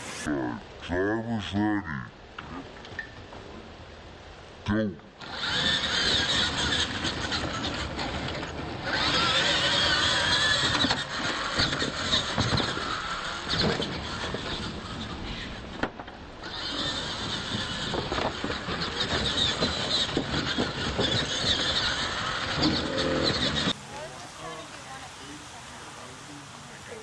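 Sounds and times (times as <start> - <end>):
toy truck motors whining: 5.2 - 15.8, 16.4 - 23.8
tyres rushing on dirt: 5.2 - 27.0.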